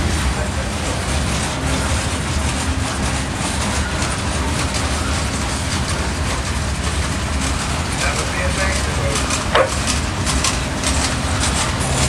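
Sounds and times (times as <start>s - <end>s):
diesel locomotive rumble: 0.0s - 12.0s
wheels clacking over rail joints: 1.3s - 12.0s.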